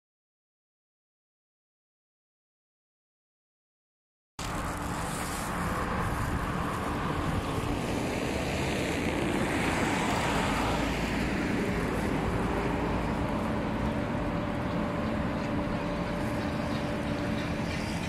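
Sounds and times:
rumble of road traffic: 4.4 - 18.0
vehicle passing: 4.4 - 18.0.

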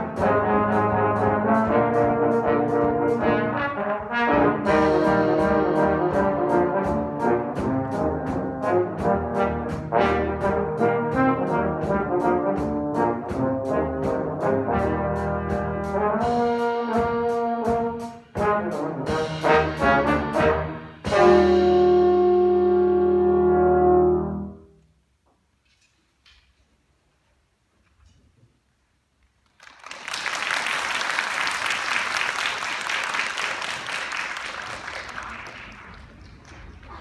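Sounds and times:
brass horns playing: 0.0 - 24.8.

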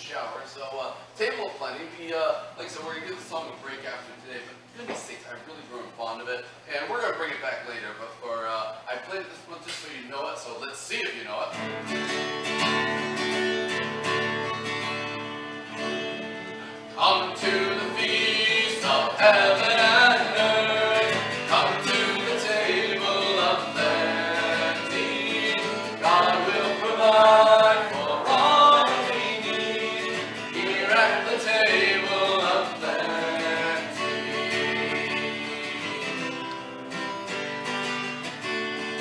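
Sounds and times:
acoustic guitar strumming: 11.5 - 39.0
person singing a hymn: 16.9 - 36.6.

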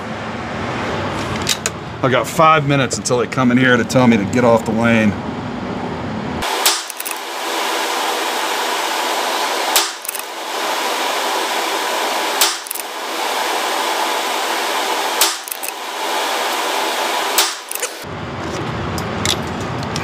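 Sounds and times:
steady hiss: 6.4 - 18.0.

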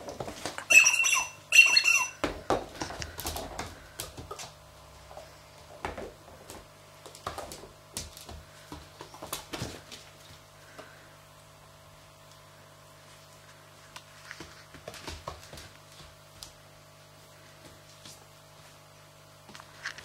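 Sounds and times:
claws and toys on laminate floor: 0.0 - 20.0
squeaky dog toy: 0.6 - 2.2.

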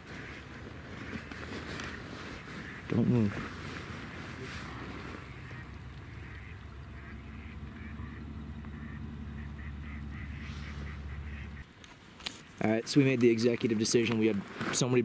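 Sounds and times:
ducks quacking: 0.0 - 11.7
steady low hum: 0.2 - 11.6.

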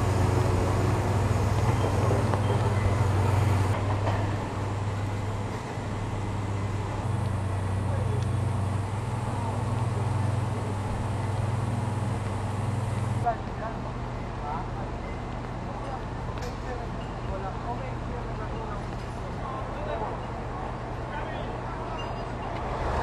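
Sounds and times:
heavy machinery diesel drone: 0.0 - 15.3.

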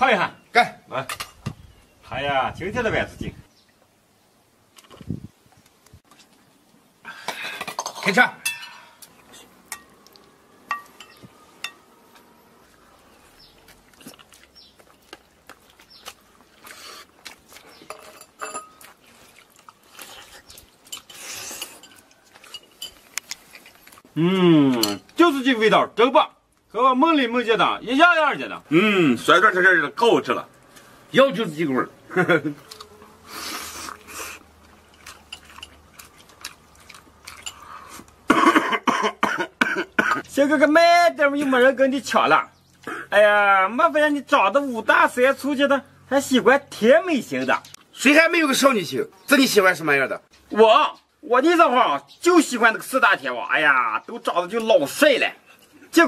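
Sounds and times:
wet chewing clicks: 9.0 - 10.4, 12.1 - 18.0, 18.7 - 24.1, 32.5 - 38.3
mouth noises of eating: 12.0 - 17.9, 18.7 - 25.1, 32.5 - 38.3
chopsticks clinking on porcelain: 20.9 - 23.1.

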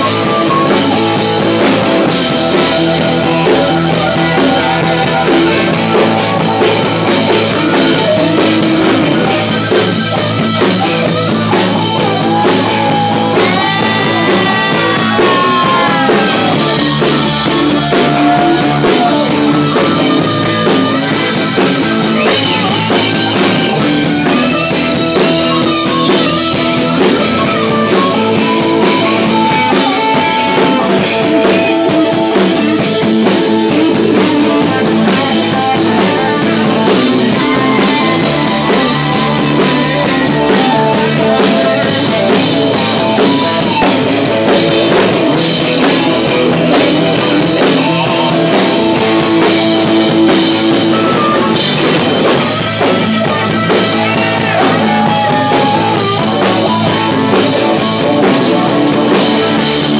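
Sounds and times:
amplified harmonica: 0.0 - 32.8
drum kit: 0.0 - 59.9
electric guitar: 0.0 - 59.9.

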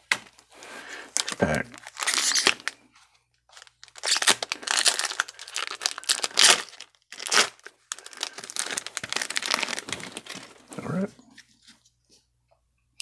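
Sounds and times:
foil wrapper tearing and crinkling: 1.2 - 2.8, 3.5 - 10.7.

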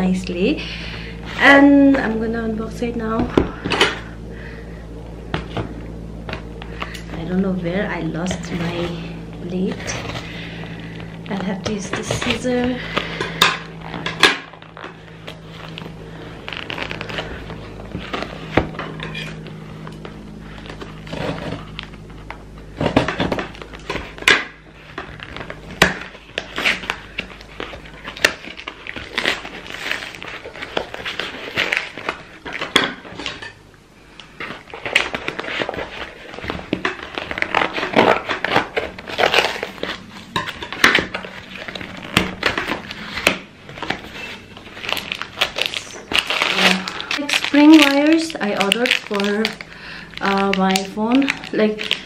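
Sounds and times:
cardboard and wrapping rustling: 0.0 - 52.0
tape tearing: 8.4 - 33.5, 34.2 - 52.0.

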